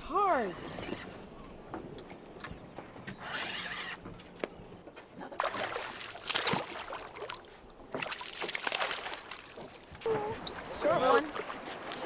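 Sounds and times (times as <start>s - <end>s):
fish thrashing and splashing water: 5.4s - 9.9s.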